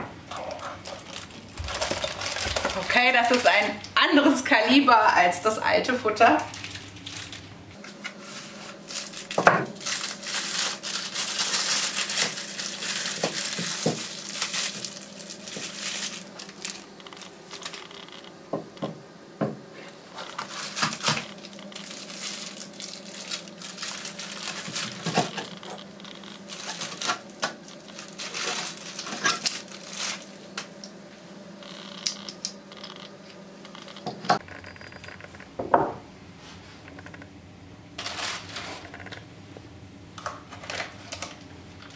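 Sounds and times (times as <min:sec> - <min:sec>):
plastic bags crinkling: 0:00.4 - 0:03.8, 0:06.2 - 0:07.5, 0:08.7 - 0:18.1, 0:20.2 - 0:30.8, 0:38.0 - 0:39.1.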